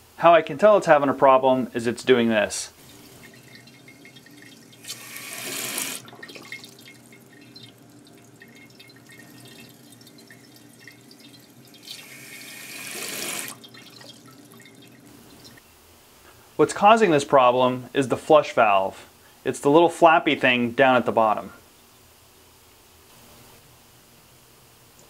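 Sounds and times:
toilet fill valve hissing: 1.8 - 15.6
water trickling into tank: 2.7 - 15.6.

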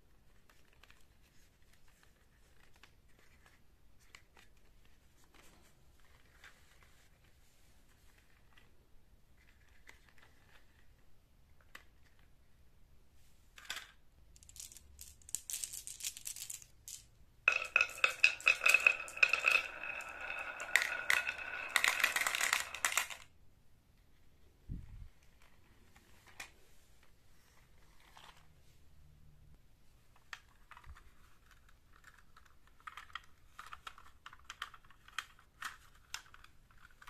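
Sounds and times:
marbles rattling in plastic bed: 13.6 - 23.3
marbles clinking together: 14.4 - 23.3.

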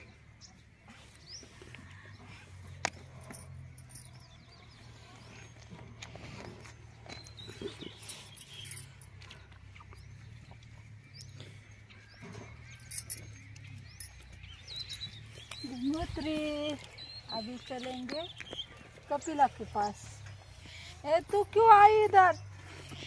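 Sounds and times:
bird chirps: 7.0 - 21.4.

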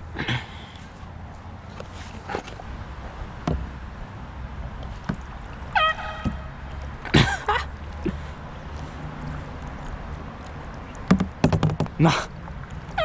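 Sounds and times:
water around a kayak: 0.0 - 13.0
wind: 0.0 - 13.0
short pitched calls: 5.6 - 6.7.

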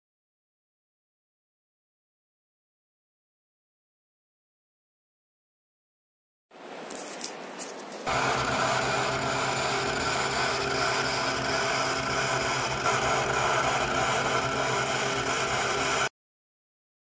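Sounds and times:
milling machine humming: 8.0 - 16.1.

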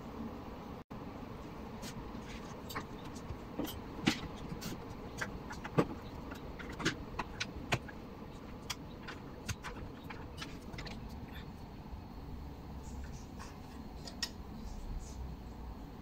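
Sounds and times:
faint steady hum: 0.0 - 16.0
clicks and knocks of computer parts: 2.6 - 11.1.

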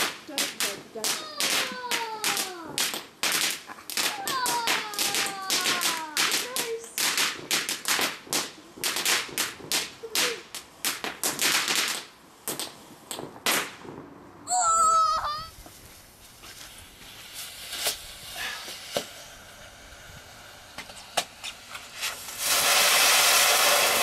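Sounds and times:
firework pops and crackles: 0.0 - 14.2, 15.4 - 24.0
falling firework whistles: 14.7 - 24.0.

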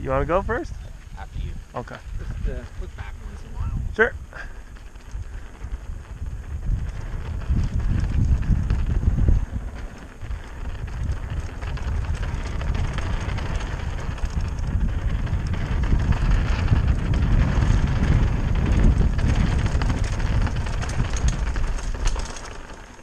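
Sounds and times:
wind buffeting microphone: 0.0 - 22.7
bike rattling: 0.0 - 23.0
tyre noise on dirt: 0.5 - 23.0.

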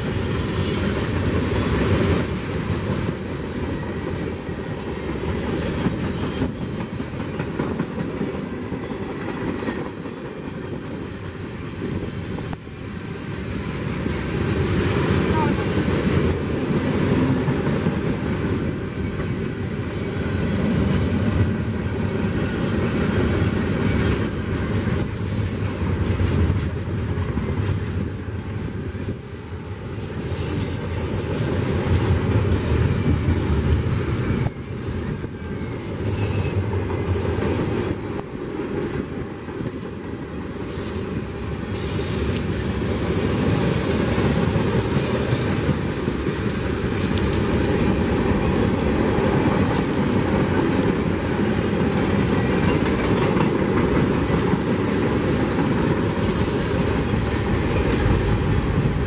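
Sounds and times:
train wheels rumbling on rails: 0.0 - 59.0
high wheel squeals: 0.3 - 1.2, 5.5 - 7.3, 41.7 - 42.9, 56.2 - 57.5.

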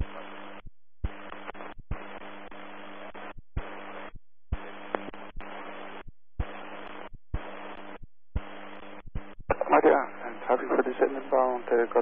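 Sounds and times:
radio hiss with low hum: 0.0 - 12.0
radio channel click: 1.0 - 2.6, 4.5 - 5.8, 6.4 - 9.9.

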